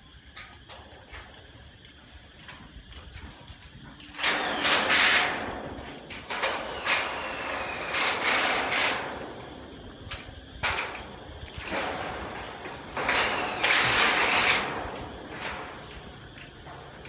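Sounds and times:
power tool on steel: 4.0 - 9.4, 10.1 - 16.7.

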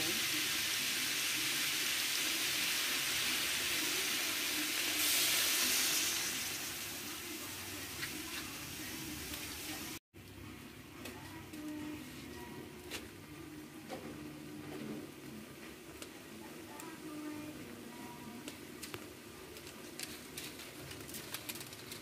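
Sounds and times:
vegetables sizzling in a wok: 0.0 - 10.0.

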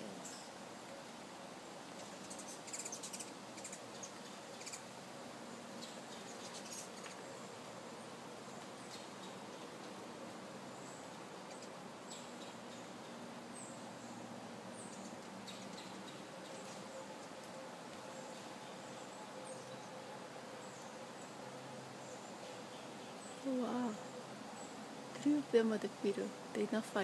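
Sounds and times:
hummingbird chip calls: 0.0 - 0.6, 2.2 - 4.9, 5.8 - 7.5
steady background hiss: 0.0 - 27.0.

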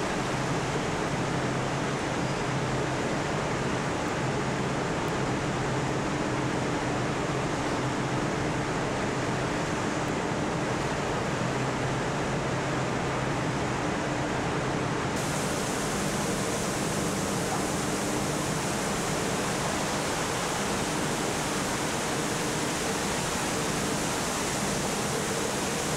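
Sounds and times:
liquid rushing and splashing: 15.2 - 25.9
low machinery hum: 15.2 - 25.9.

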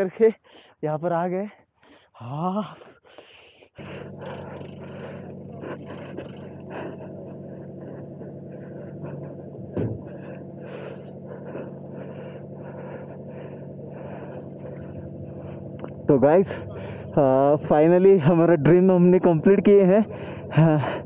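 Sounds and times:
motorcycle engine idling: 3.7 - 21.0.

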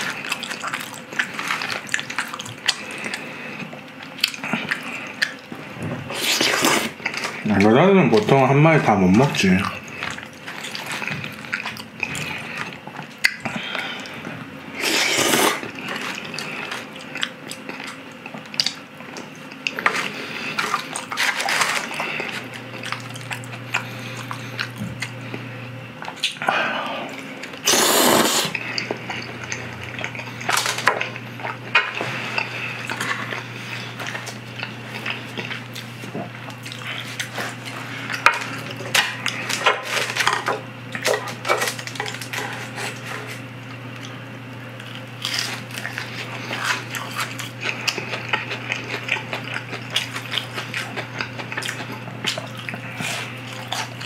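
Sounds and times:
wet chewing and slurping noodles: 0.0 - 7.5, 9.4 - 54.0
low steady hum: 0.0 - 54.0.

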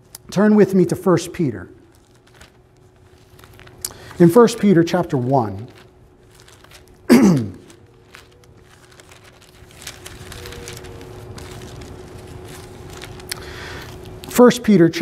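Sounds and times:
faint steady hum: 0.0 - 15.0
paper pages rustling: 1.8 - 14.8
man's short vocal sound: 7.1 - 7.7.

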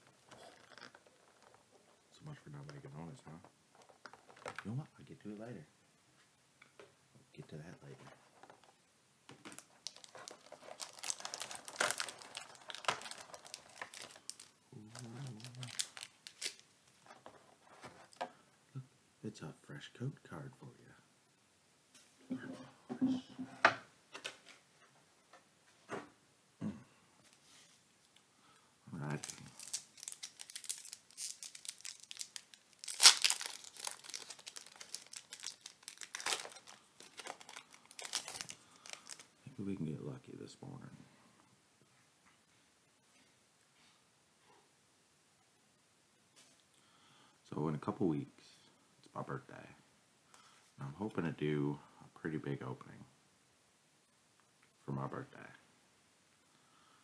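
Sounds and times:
crinkling plastic and foil packaging: 0.0 - 2.0, 3.7 - 4.7, 9.4 - 18.2, 29.0 - 39.4.

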